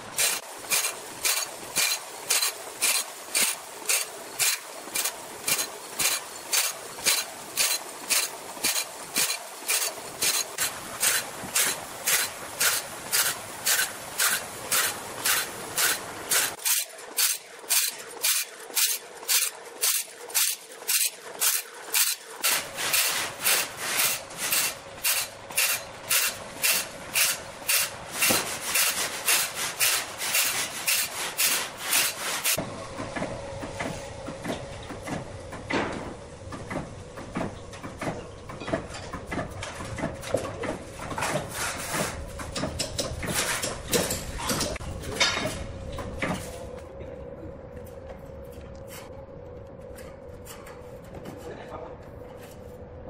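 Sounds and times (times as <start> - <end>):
grinding wheel rasping on saw teeth: 0.2 - 32.6.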